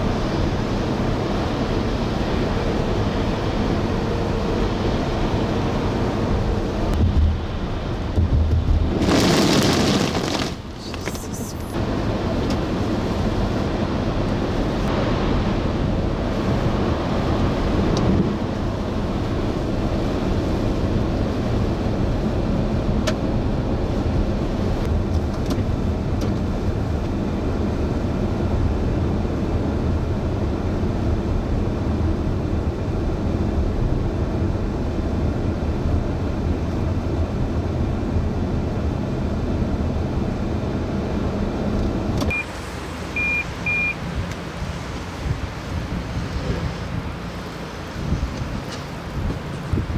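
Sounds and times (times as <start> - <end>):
moving vehicle low rumble: 0.0 - 49.9.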